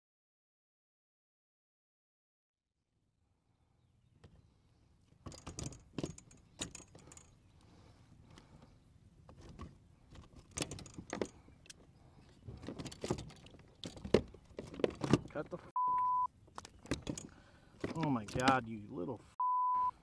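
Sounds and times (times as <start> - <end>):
handling noise: 8.3 - 15.6.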